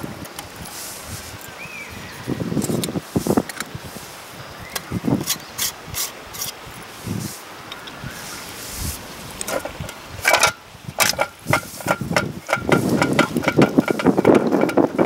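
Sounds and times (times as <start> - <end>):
wind buffeting microphone: 0.0 - 15.0
small metallic clicks and taps: 9.4 - 15.0.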